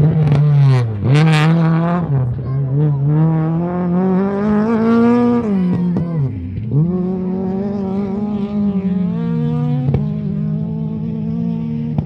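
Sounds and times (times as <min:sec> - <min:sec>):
rally car engine revving: 0:00.0 - 0:12.0.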